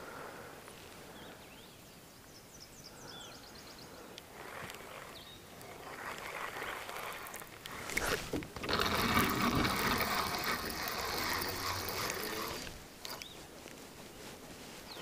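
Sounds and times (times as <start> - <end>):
fishing reel whirring: 4.0 - 13.3.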